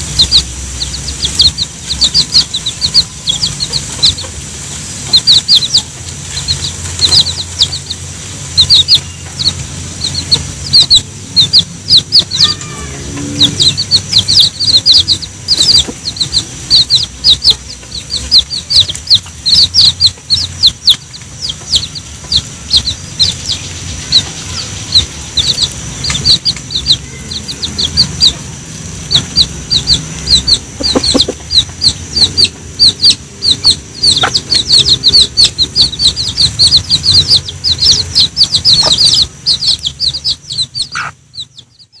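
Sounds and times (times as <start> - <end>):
baby chicks peeping: 0.0 - 42.0
hen clucking: 0.0 - 42.0.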